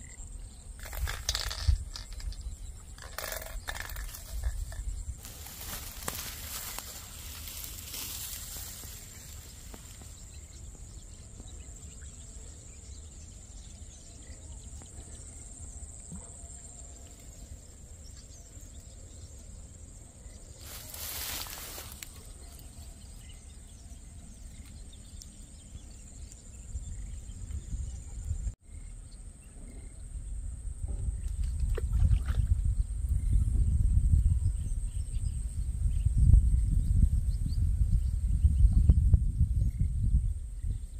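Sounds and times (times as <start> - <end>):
insects shrilling: 20.6 - 22.6.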